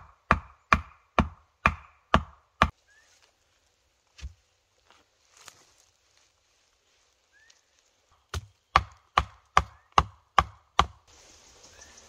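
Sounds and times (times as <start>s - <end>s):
wood being chopped: 0.0s - 2.8s, 4.2s - 4.4s, 8.3s - 11.0s
outdoor hiss: 11.0s - 12.0s.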